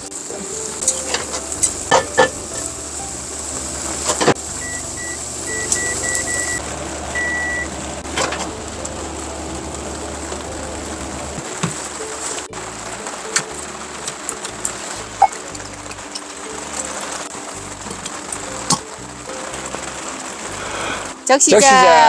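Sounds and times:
microwave low hum: 1.5 - 11.9
keypad beeps: 4.6 - 6.6.

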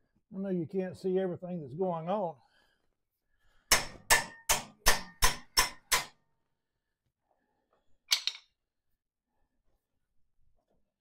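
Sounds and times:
hammer striking steel: 3.7 - 6.2.

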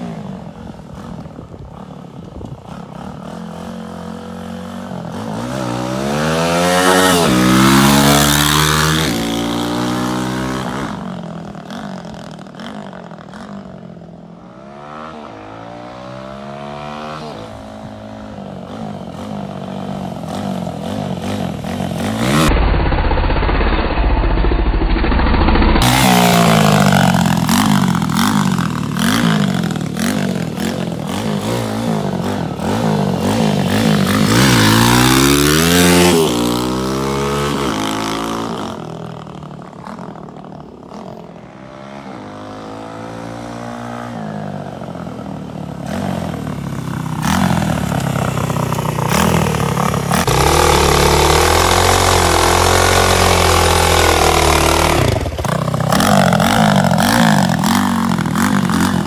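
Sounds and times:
dirt bike engine revving: 2.7 - 13.8, 14.4 - 59.0.

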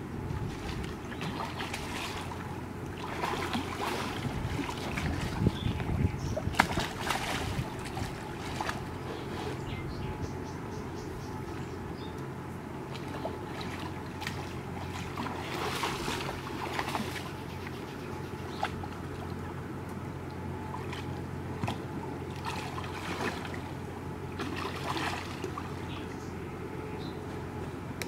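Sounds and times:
fish splashing in water: 0.4 - 9.3, 12.8 - 19.4, 20.6 - 26.0.

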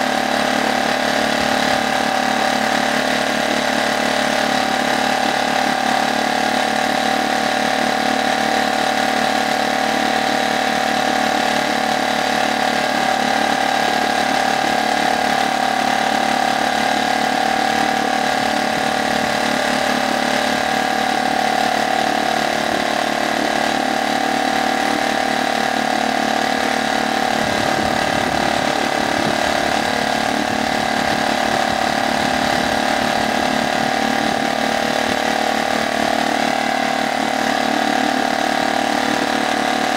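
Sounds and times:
outboard motor running: 0.0 - 39.9.

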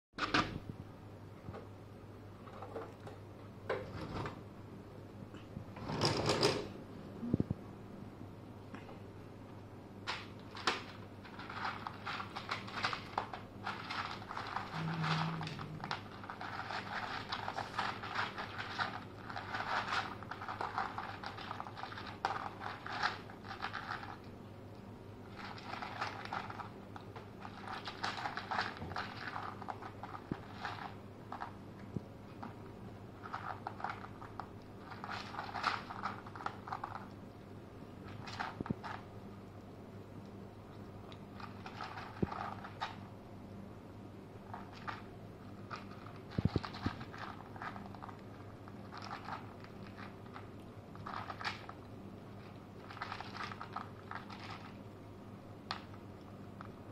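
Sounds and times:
kittens crunching dry kibble: 10.1 - 43.1, 44.4 - 55.0, 55.6 - 56.9.

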